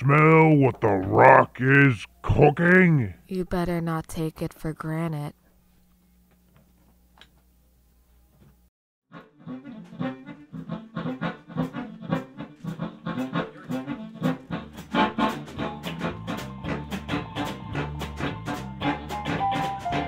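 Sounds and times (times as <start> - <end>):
background music with quick beat: 9.7 - 20.0.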